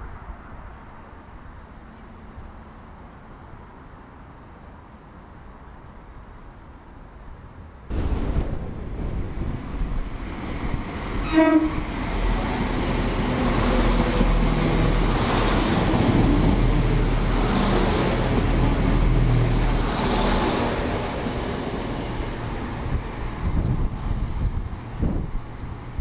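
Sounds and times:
diesel train engines: 0.0 - 26.0
wheels rumbling on rails: 7.9 - 26.0
train horn toot: 11.2 - 11.9.

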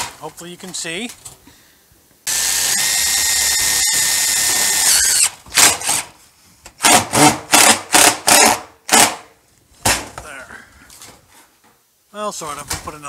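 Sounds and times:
impact driver driving screw into metal: 6.8 - 9.2.

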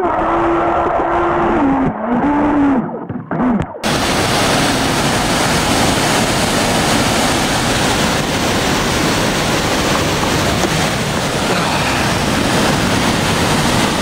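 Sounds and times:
waterfall and rapids rushing: 3.8 - 14.0.

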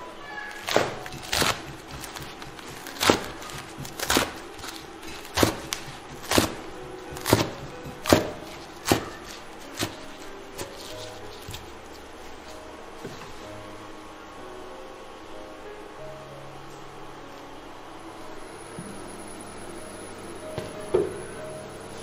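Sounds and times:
cleaver chopping on wooden board: 5.3 - 10.0.

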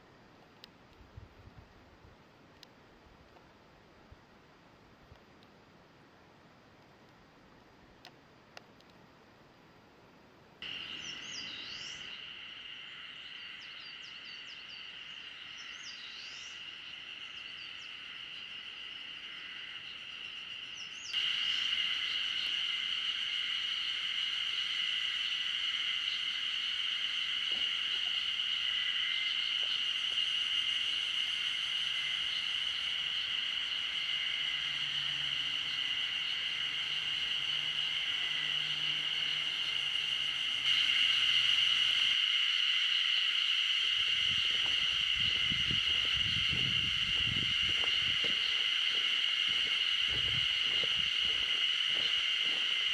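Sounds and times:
high-pitched insect chorus: 10.6 - 52.9.

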